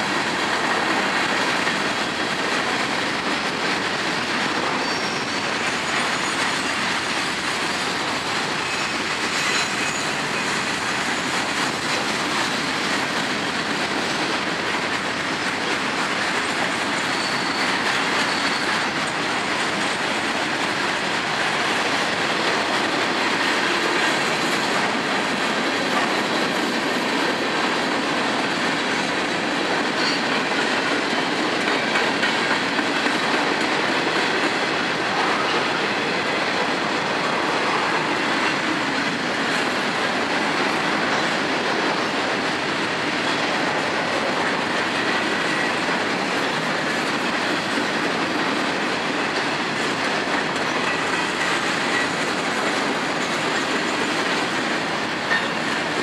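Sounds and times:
train wheels on rails: 0:00.0 - 0:56.0.

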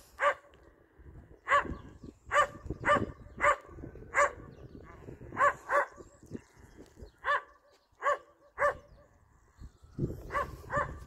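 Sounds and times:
dog barking: 0:00.2 - 0:00.5, 0:01.5 - 0:04.5, 0:05.3 - 0:06.0, 0:07.2 - 0:08.9, 0:10.3 - 0:11.0
wind rumble on microphone: 0:00.2 - 0:07.6, 0:08.6 - 0:11.0.

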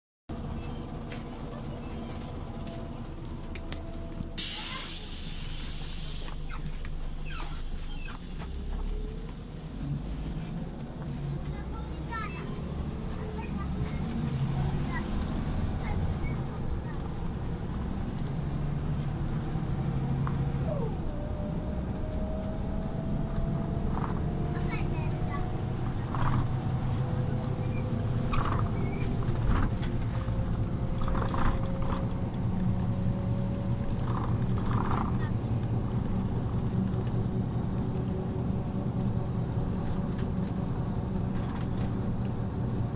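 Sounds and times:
bus engine droning: 0:00.3 - 0:42.9
compressed-air hiss: 0:04.4 - 0:06.3
faint short squeaks: 0:06.3 - 0:08.3.

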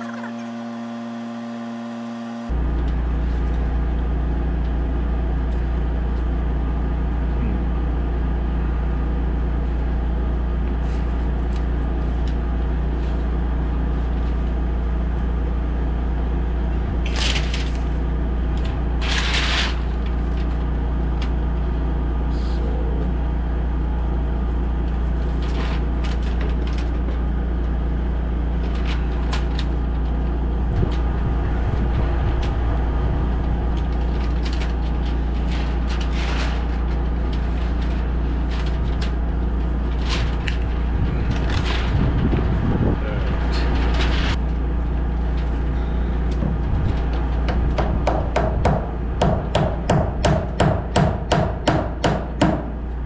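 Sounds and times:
machine droning: 0:00.0 - 0:53.0.

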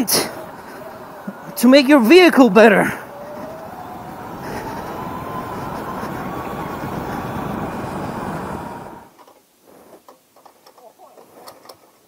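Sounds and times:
electric motor whine: 0:00.0 - 0:09.1
wind buffeting microphone: 0:00.0 - 0:09.1.

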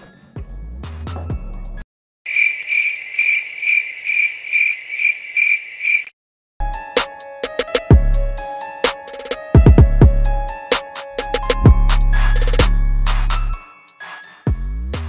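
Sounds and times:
drum-led music: 0:00.0 - 0:01.8, 0:06.7 - 0:15.0
crickets chirping: 0:02.3 - 0:06.1
bass-heavy music sting: 0:11.2 - 0:13.6.

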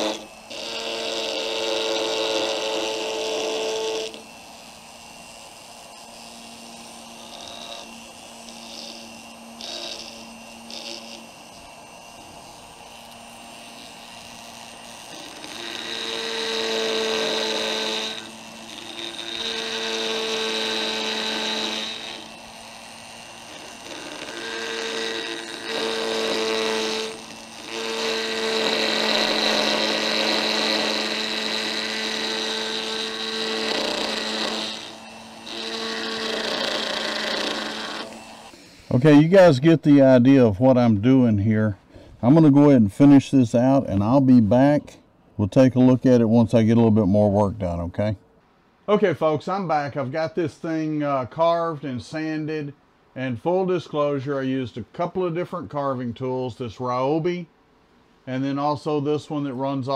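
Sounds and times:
rotary tool motor humming: 0:00.0 - 0:39.2
burr grinding wood: 0:00.0 - 0:48.1.

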